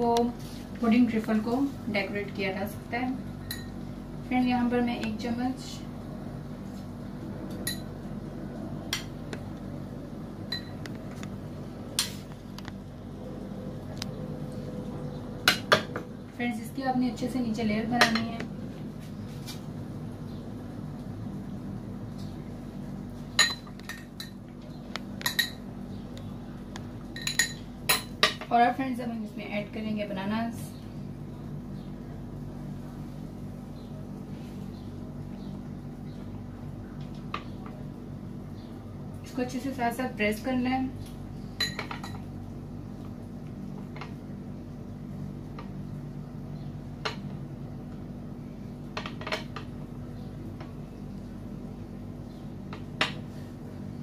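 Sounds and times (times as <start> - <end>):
steady low hum: 0.0 - 54.0
metal spoon clinking on glass: 41.6 - 42.2.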